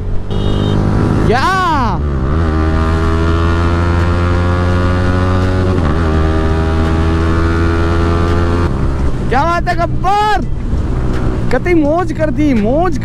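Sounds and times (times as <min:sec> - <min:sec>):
wind and road noise: 0:00.0 - 0:13.0
motorcycle engine accelerating: 0:00.3 - 0:09.3.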